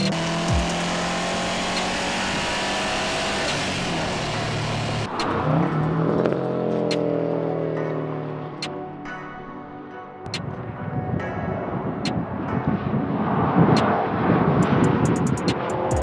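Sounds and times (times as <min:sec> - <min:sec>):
car engine and exhaust running hard: 0:00.0 - 0:08.7.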